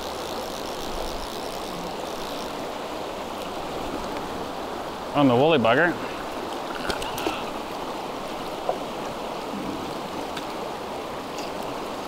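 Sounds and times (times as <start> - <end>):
faint ticks: 0.0 - 2.6
river water rushing: 0.0 - 12.0.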